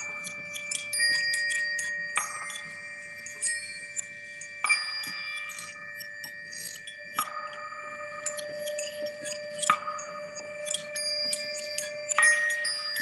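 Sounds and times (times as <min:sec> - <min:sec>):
light high tinkling: 0:00.0 - 0:13.0
struck chimes ringing: 0:07.2 - 0:13.0.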